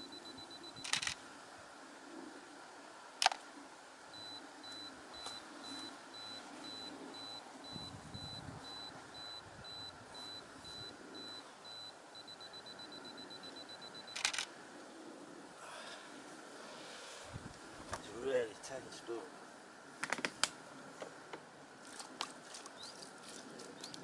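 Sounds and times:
camera self-timer beeping: 0.0 - 1.2, 4.2 - 14.5
camera shutter clicks: 0.8 - 1.2, 14.1 - 14.5.

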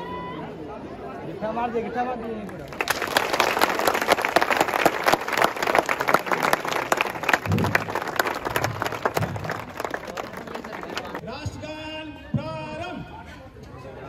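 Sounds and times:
crowd applauding: 2.6 - 11.2.

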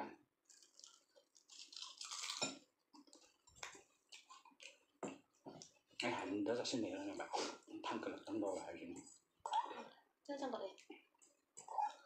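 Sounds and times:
crunchy chewing: 0.4 - 6.1.

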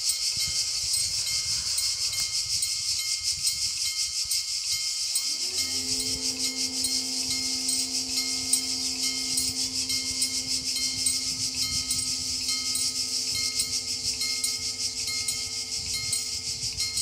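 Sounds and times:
warning bell ringing: 4.8 - 17.0
steady electric hum: 4.9 - 17.0.

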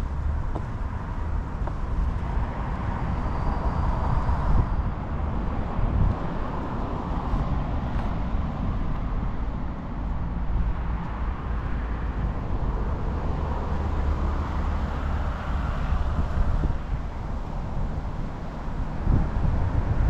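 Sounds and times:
road traffic hum: 0.0 - 20.0.

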